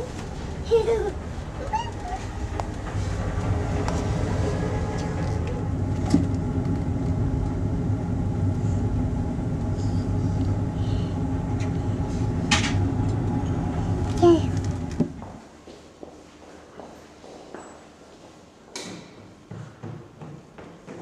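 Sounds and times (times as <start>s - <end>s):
boat engine droning: 0.0s - 15.3s.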